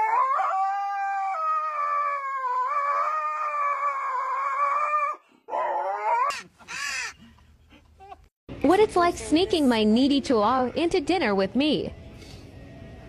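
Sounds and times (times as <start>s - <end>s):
husky howling: 0.0s - 6.4s.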